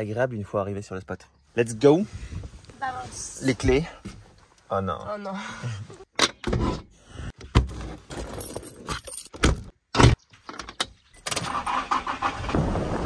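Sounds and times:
keys jangling: 0:08.3 - 0:09.4.

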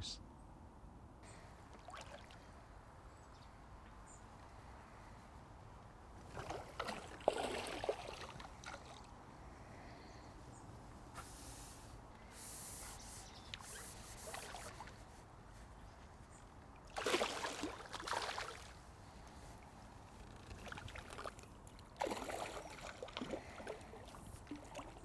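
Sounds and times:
fish splashing in water: 0:01.6 - 0:02.5, 0:06.3 - 0:09.1, 0:13.6 - 0:15.0, 0:16.8 - 0:18.8, 0:20.4 - 0:25.0.

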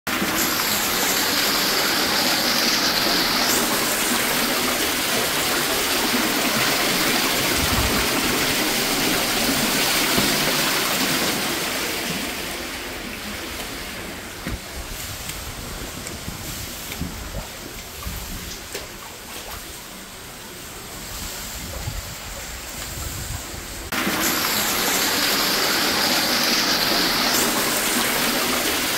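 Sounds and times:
water gushing from toilet: 0:00.1 - 0:21.9, 0:23.9 - 0:28.9.

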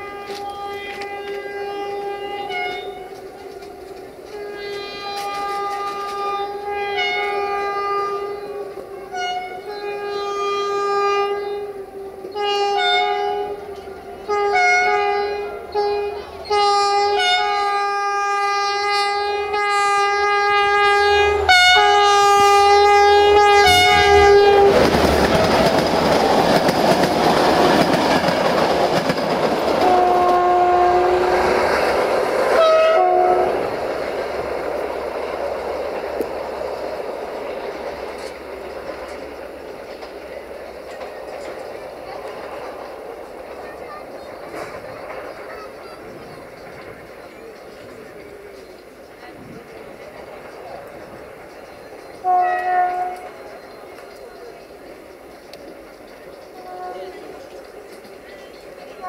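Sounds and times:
locomotive horn blasts: 0:00.0 - 0:25.7, 0:29.8 - 0:31.6, 0:32.5 - 0:33.8, 0:52.2 - 0:53.4, 0:56.6 - 0:57.4
train engine and wheels on rails: 0:00.0 - 0:59.0.

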